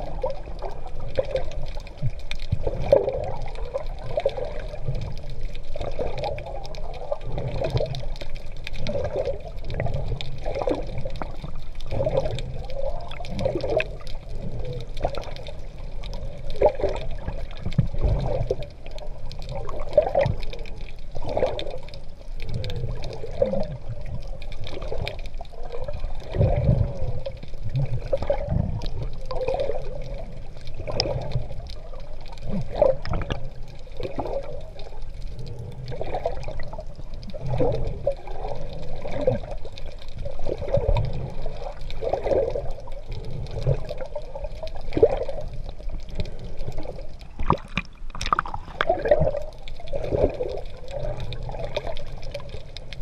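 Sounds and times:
muffled water sloshing and splashing: 0:00.0 - 0:53.0.

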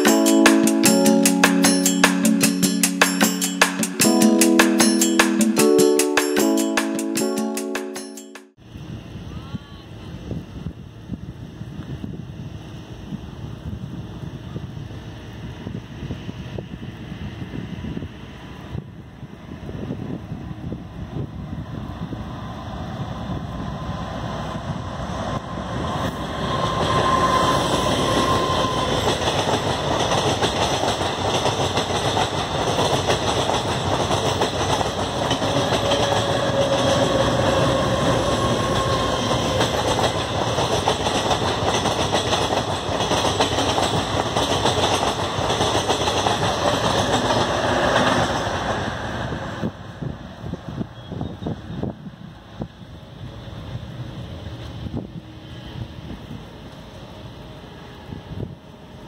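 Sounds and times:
diesel train passing: 0:00.0 - 0:09.2, 0:10.1 - 0:59.0.

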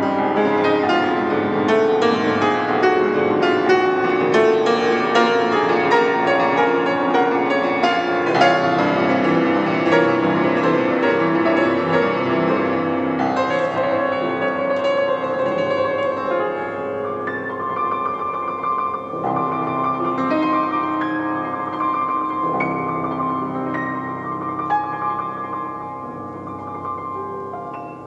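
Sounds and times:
solo piano improvisation: 0:00.0 - 0:28.0.

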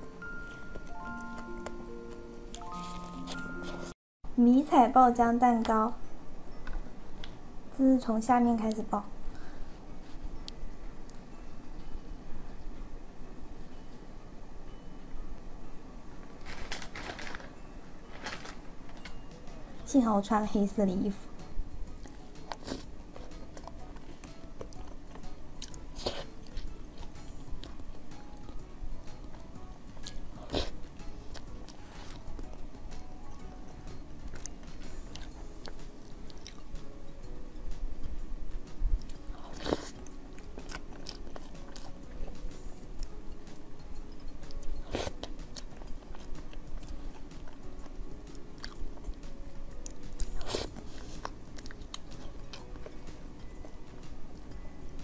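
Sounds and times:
faint background music: 0:00.0 - 0:55.0
chewing and wet mouth sounds: 0:22.0 - 0:28.6, 0:34.2 - 0:36.8, 0:39.0 - 0:43.2, 0:44.0 - 0:54.6.

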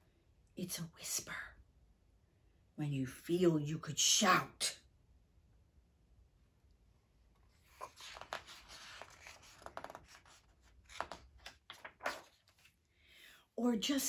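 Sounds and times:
book pages rustling: 0:07.4 - 0:12.8.

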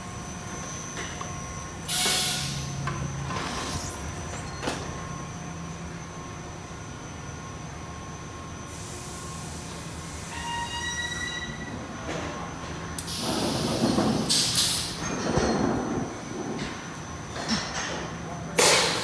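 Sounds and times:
machinery hum: 0:00.0 - 0:19.0
hiss: 0:01.9 - 0:02.7, 0:13.0 - 0:15.0
high squeal: 0:10.1 - 0:11.9.

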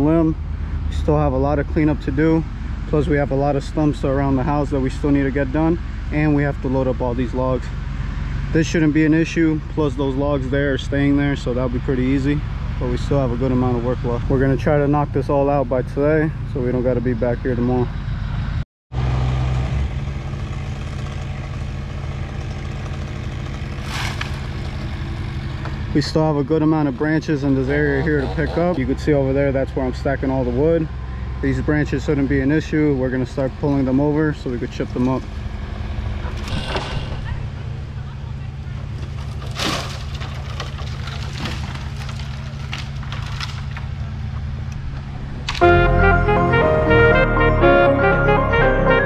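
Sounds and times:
engine idling: 0:20.2 - 0:46.2
branches dragged across ground: 0:23.8 - 0:25.0
music: 0:45.6 - 0:49.0.

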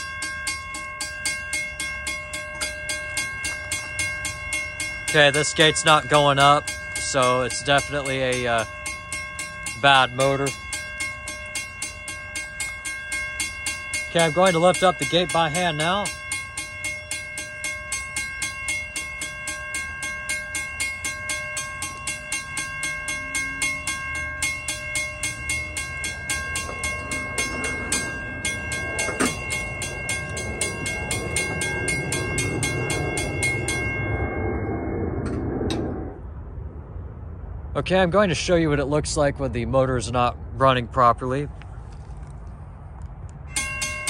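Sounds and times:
railroad crossing bell ringing: 0:00.0 - 0:36.1, 0:43.3 - 0:44.0
crossing gate mechanism rising: 0:02.3 - 0:33.9.

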